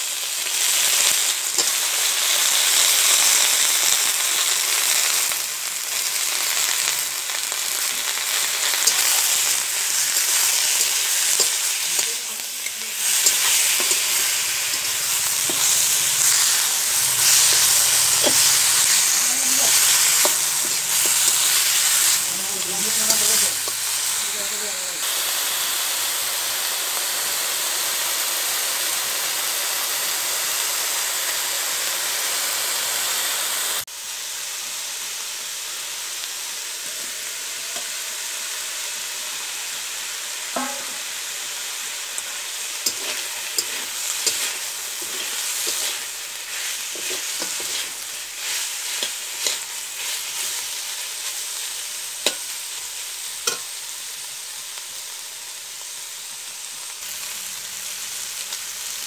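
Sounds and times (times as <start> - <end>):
meat sizzling in a wok: 0.0 - 59.0
metal spatula scraping and clinking: 8.7 - 22.2, 42.8 - 50.6.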